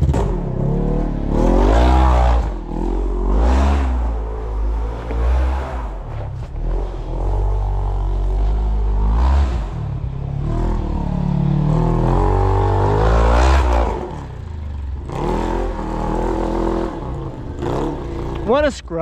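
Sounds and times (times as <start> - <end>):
vehicle engine revving: 0.0 - 18.7.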